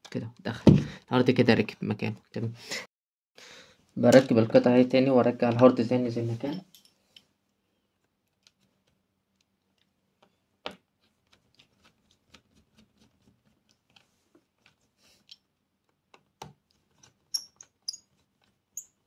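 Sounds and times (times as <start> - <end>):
screwdriver and screws clicking: 17.0 - 19.0.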